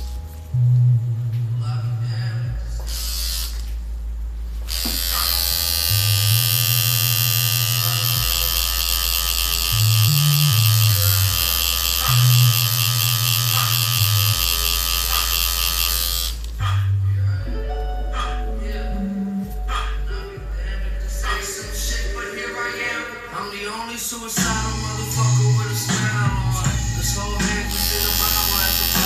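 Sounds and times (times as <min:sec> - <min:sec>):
tattoo machine buzzing: 0:02.8 - 0:03.8, 0:04.6 - 0:16.9, 0:26.5 - 0:29.0.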